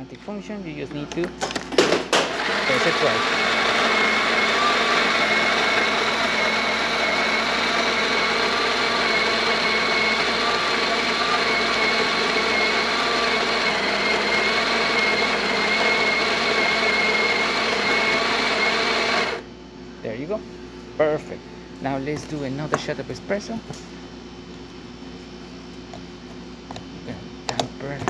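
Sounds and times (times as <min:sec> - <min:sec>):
coffee grinder grinding beans: 0:02.2 - 0:19.4.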